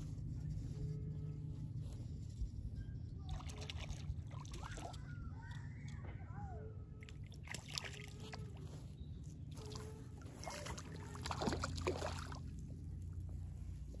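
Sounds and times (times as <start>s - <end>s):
fish splashing in water: 7.2s - 8.6s, 9.5s - 12.6s.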